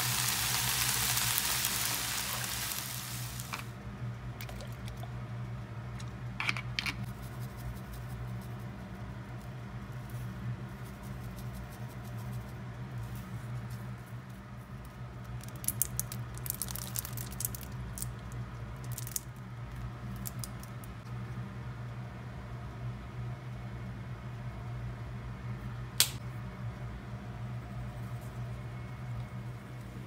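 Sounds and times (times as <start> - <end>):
vegetables sizzling in a frying pan: 0.0 - 3.7.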